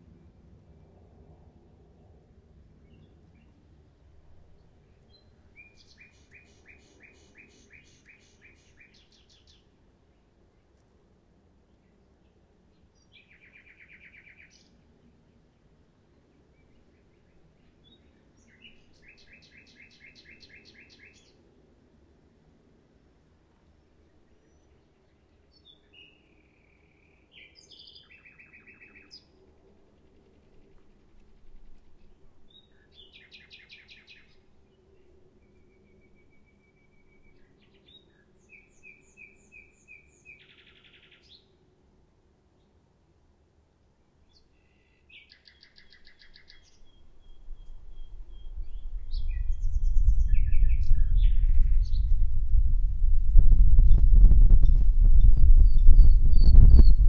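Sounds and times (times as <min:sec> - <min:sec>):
nightingale singing: 0:05.1 - 0:09.6, 0:17.8 - 0:21.3, 0:44.3 - 0:52.6, 0:53.4 - 0:57.0.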